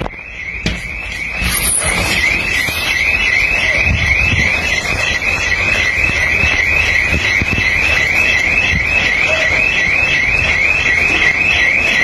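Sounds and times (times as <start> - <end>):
electronic alarm siren wailing: 0.0 - 12.0
wind buffeting microphone: 3.6 - 9.1.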